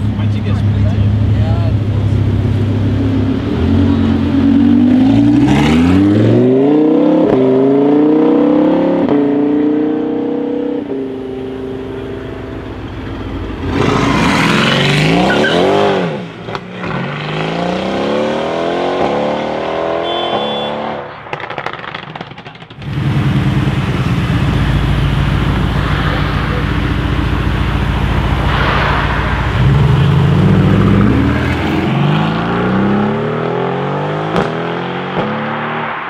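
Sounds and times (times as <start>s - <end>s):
sports car revving through upshifts: 3.6s - 11.5s, 13.6s - 21.1s
exhaust crackles and pops: 21.1s - 23.0s.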